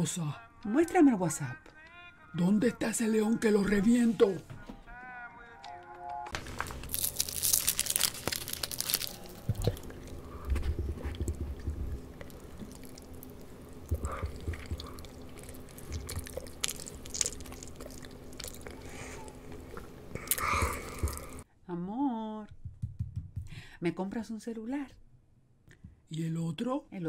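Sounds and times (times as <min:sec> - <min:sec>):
foil wrapper crinkling: 0:06.4 - 0:20.0
close-up chewing: 0:06.4 - 0:21.4
mouth clicks: 0:09.4 - 0:21.4.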